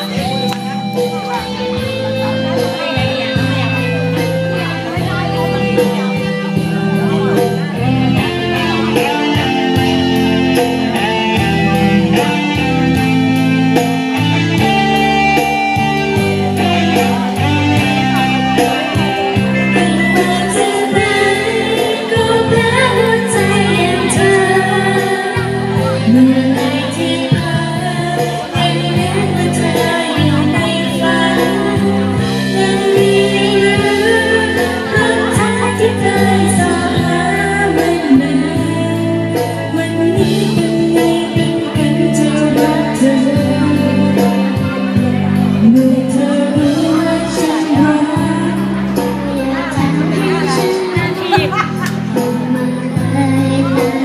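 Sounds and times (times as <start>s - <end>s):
recorded backing music: 0.0s - 54.0s
woman and girl singing: 19.8s - 44.5s, 45.6s - 51.6s, 52.4s - 54.0s.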